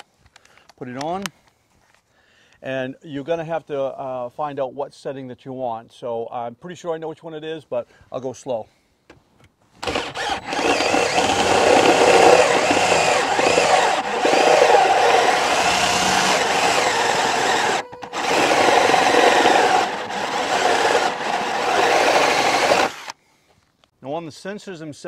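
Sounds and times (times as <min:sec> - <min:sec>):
cordless drill drilling sheet metal: 0:09.8 - 0:23.2.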